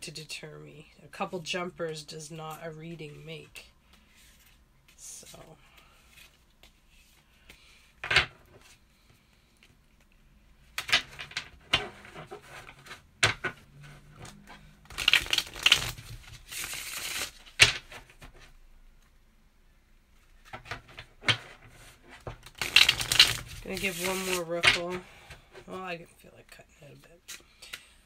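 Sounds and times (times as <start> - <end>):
cards riffling: 14.2 - 17.9, 22.4 - 24.4
cards rustling and slapping: 14.2 - 18.4, 22.2 - 25.0.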